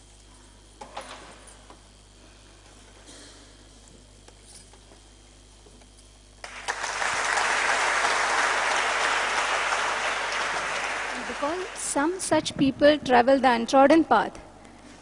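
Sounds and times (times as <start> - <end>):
audience applauding: 6.4 - 12.3.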